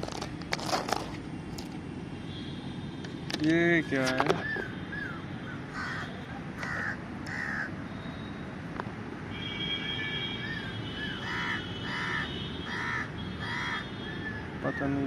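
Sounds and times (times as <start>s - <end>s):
crows cawing: 4.4s - 7.8s, 10.4s - 15.0s.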